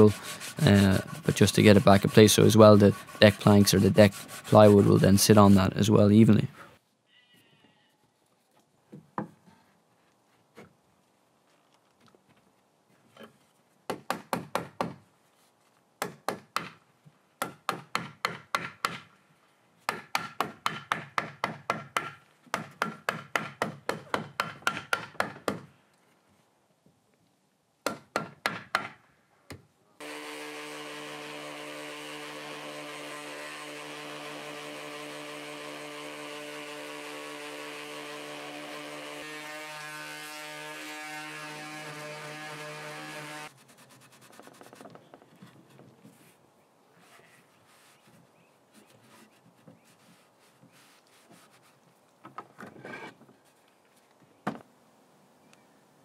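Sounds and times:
orbital sander on wood: 0.0s - 6.1s, 30.0s - 43.5s
sharp wooden knocks: 17.4s - 19.1s, 19.9s - 25.7s, 27.8s - 29.0s.

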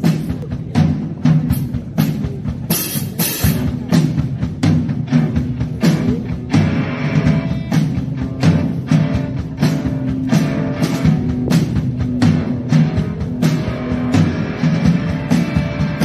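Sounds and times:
bass guitar: 0.0s - 16.0s
drum kit beat: 0.0s - 16.0s
electric guitars: 2.0s - 16.0s.

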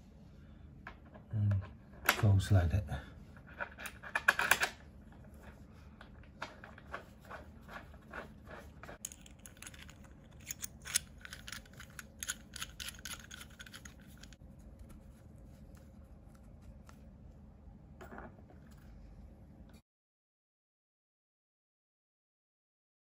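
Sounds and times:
nut threading onto pipe: 9.0s - 14.4s.

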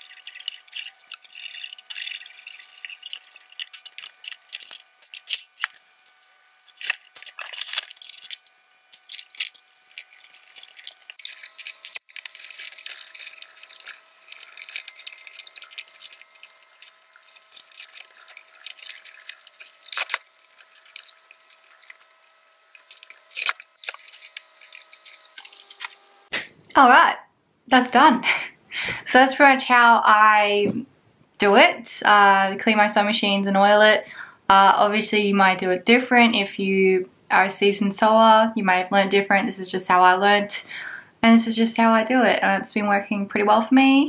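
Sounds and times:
plastic parts clicking and rattling: 0.0s - 26.0s.

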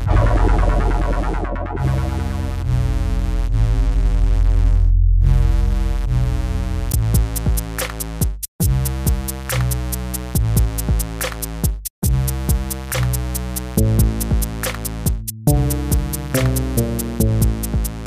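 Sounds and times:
sustained synthesizer notes: 0.0s - 6.6s, 13.8s - 18.0s
drum machine beat: 6.9s - 18.0s.

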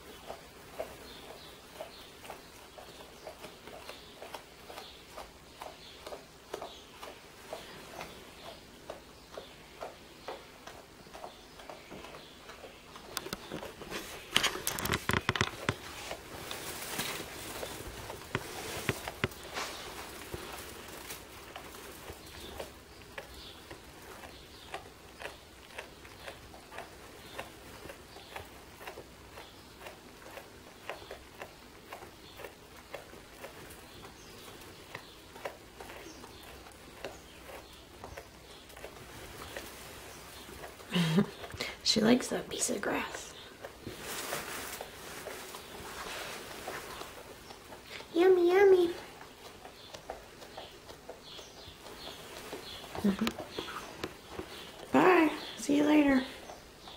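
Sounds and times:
animal chewing grass: 0.0s - 56.9s
rustling of hay and fabric: 13.0s - 30.4s, 31.9s - 56.9s.

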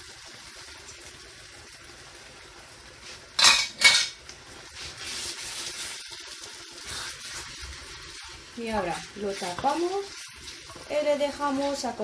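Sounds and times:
sauce simmering in a pan: 0.0s - 12.0s
kitchenware clattering: 3.4s - 4.2s.

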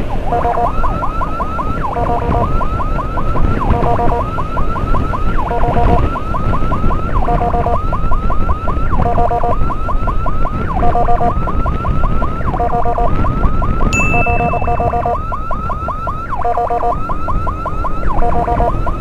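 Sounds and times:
electronic emergency siren: 0.0s - 19.0s
wind noise: 0.0s - 19.0s
steady high beep: 14.0s - 15.2s.

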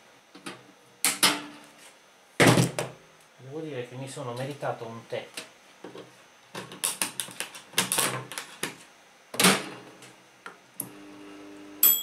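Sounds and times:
microwave oven humming: 6.1s - 12.0s.

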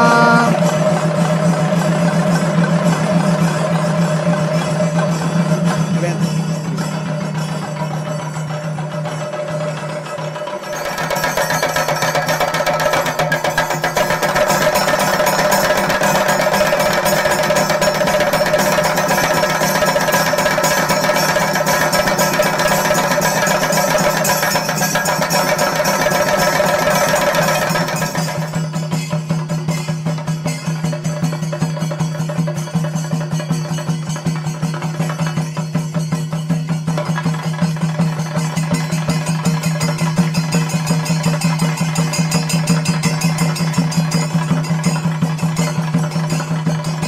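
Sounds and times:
steady held tone: 0.0s - 0.7s
drums beaten with sticks: 0.0s - 47.0s.

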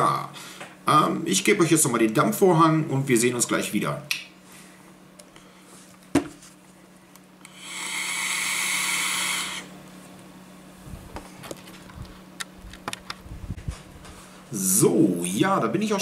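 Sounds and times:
air hissing through e-cigarette: 7.4s - 9.7s
breathy puffs exhaling: 7.5s - 9.7s.

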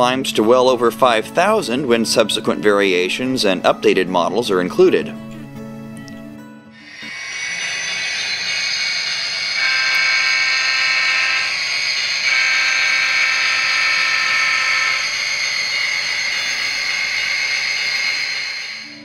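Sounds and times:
steady high hiss: 6.8s - 19.0s
model locomotive horn: 6.9s - 19.0s.

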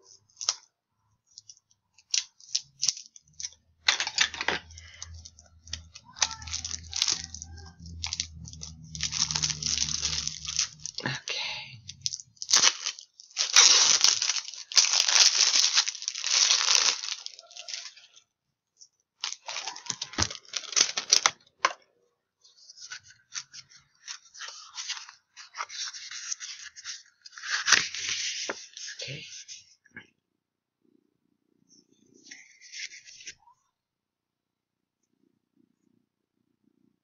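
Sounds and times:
wrapping crinkling: 0.0s - 18.2s, 18.8s - 21.6s, 22.6s - 29.1s
packaging tearing: 4.8s - 11.1s, 11.9s - 18.2s, 19.2s - 21.5s.

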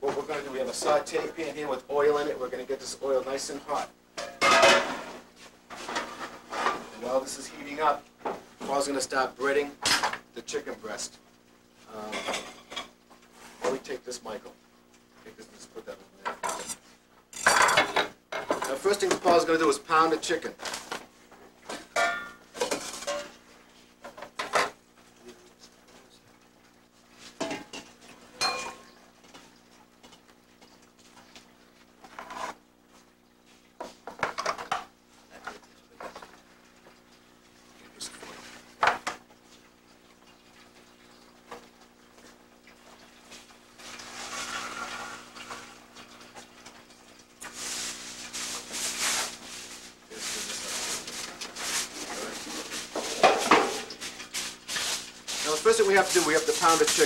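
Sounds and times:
metal pans clanking: 4.2s - 6.9s, 12.1s - 12.9s, 16.3s - 16.8s, 17.4s - 19.5s, 21.7s - 23.4s, 27.4s - 29.0s, 52.9s - 54.0s
rustling crinkling handling noise: 18.7s - 21.5s, 46.8s - 57.0s.

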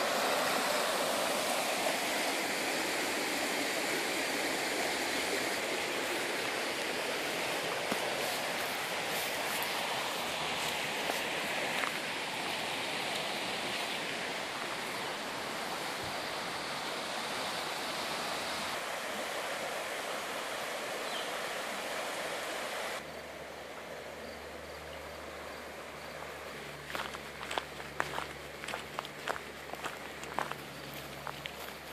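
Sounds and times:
fast river rushing: 0.0s - 24.2s.

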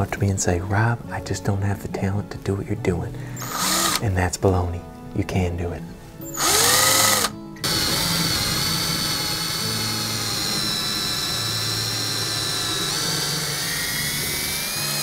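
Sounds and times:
cordless drill whine: 3.4s - 4.0s, 6.3s - 15.0s.

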